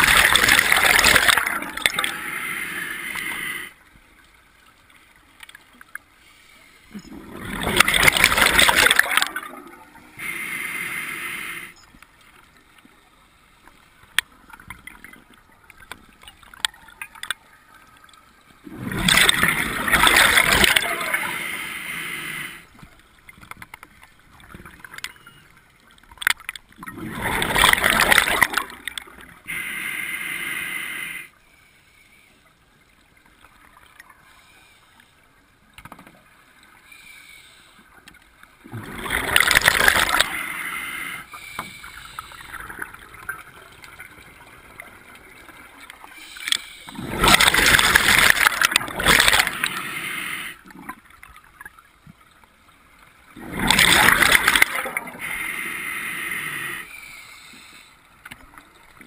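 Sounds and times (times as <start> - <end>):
gurgling exhaled bubbles: 0.0 - 3.7, 6.9 - 10.4, 18.6 - 21.7, 26.8 - 29.1, 38.6 - 41.1, 46.9 - 50.5, 53.4 - 56.9
regulator hissing inhalation: 10.2 - 11.8, 21.2 - 22.7, 29.5 - 31.3, 49.4 - 50.6, 55.2 - 58.0.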